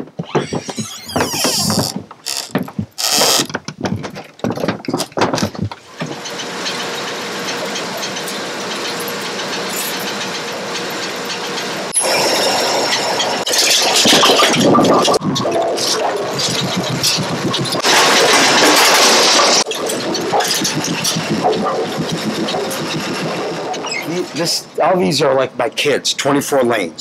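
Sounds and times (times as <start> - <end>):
sharp knocks and clatters: 0.0 - 6.8, 13.6 - 24.2
bowling pinsetter machinery humming: 0.0 - 25.1.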